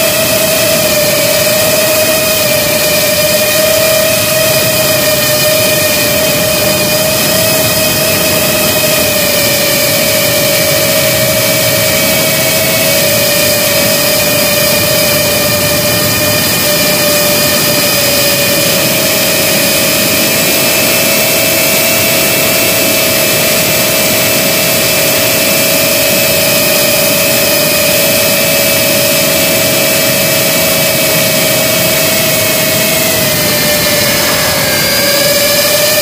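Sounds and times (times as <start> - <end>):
drone motors whining: 0.0 - 36.0
air rushing: 31.4 - 36.0.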